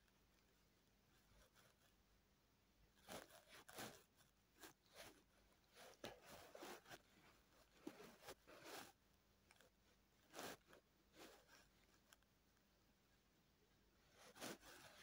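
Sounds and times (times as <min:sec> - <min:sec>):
faint short rustles: 0:02.9 - 0:12.3, 0:14.1 - 0:15.0.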